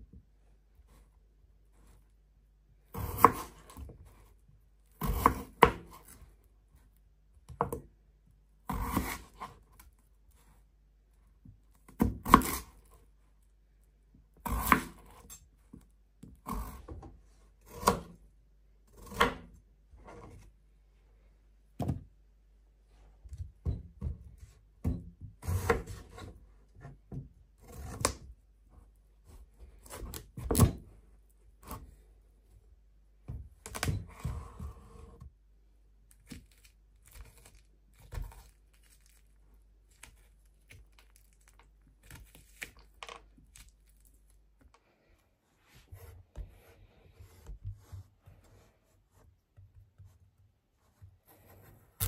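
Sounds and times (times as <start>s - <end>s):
knife cutting potatoes on board: 2.9s - 4.1s, 5.0s - 6.2s, 8.7s - 9.7s, 11.9s - 12.8s, 14.4s - 15.4s, 17.6s - 18.2s, 18.9s - 20.4s, 25.4s - 26.9s, 27.6s - 28.3s.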